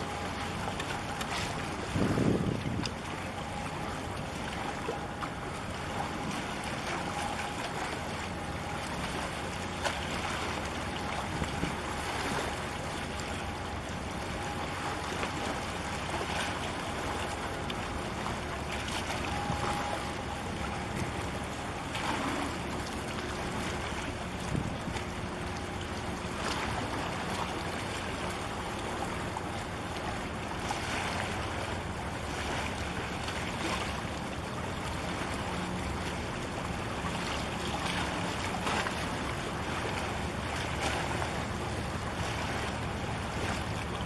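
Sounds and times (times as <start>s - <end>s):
water at shore: 0.0s - 44.0s
wind on microphone: 1.8s - 3.0s, 24.4s - 25.0s.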